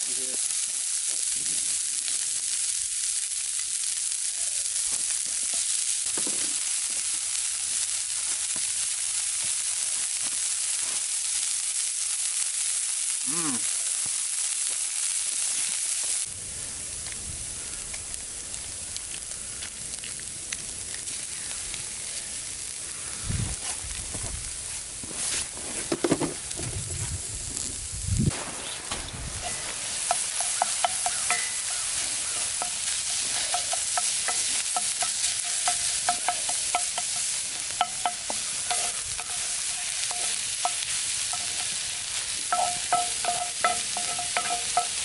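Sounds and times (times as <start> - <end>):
vegetables sizzling in skillet: 0.0 - 45.0
low thuds in pan: 42.5 - 45.0.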